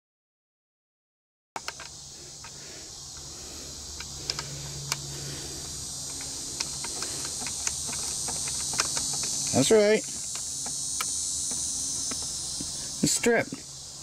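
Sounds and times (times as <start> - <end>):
metallic clicks of spark plug turning: 1.6 - 2.6, 3.9 - 5.1, 6.0 - 12.8
steady high hiss: 1.6 - 14.0.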